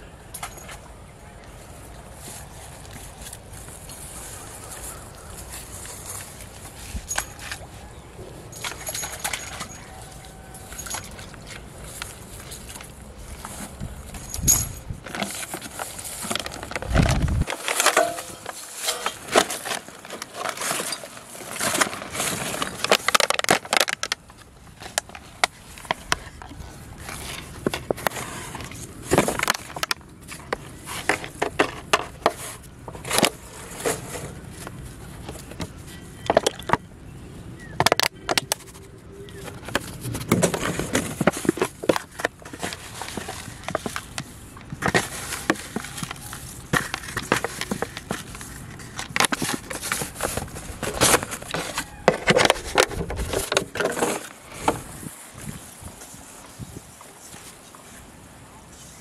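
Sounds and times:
plastic bags crinkling: 8.5s - 36.7s.

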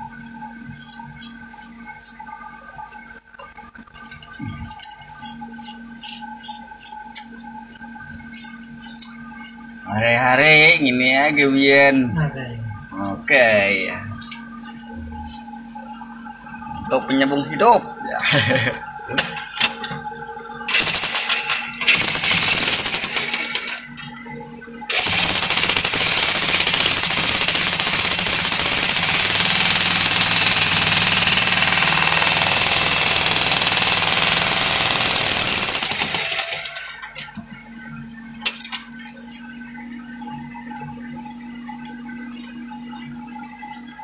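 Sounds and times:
steady low hum: 0.0s - 44.0s
jackhammer chiselling into rock: 20.7s - 23.7s, 24.9s - 36.8s.

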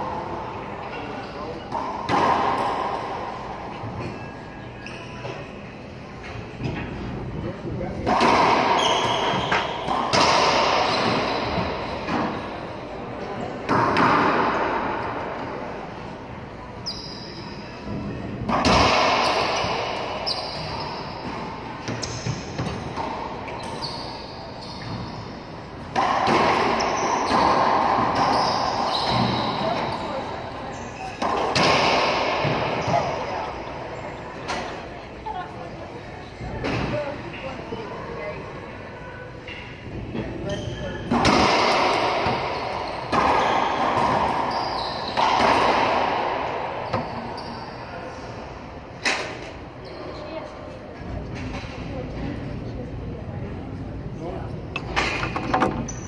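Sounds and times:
racquetball hits echoing: 0.9s - 5.4s, 7.8s - 16.1s, 17.1s - 35.0s, 36.6s - 37.2s, 40.4s - 49.6s.

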